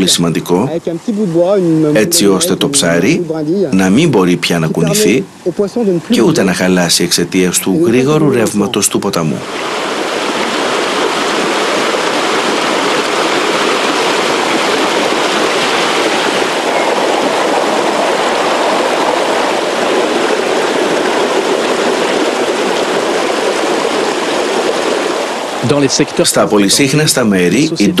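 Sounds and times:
river water rushing over cascades: 9.4 - 27.3.

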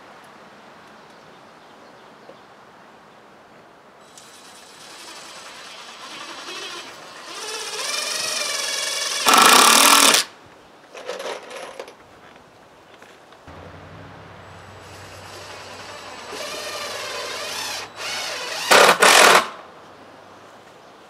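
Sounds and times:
power driver motor whine: 13.5 - 19.2
power driver hammering rattle: 13.5 - 19.6.

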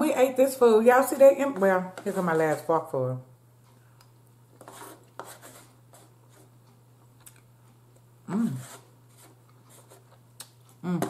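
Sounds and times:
person humming mmm: 8.2 - 8.8, 10.7 - 11.0.

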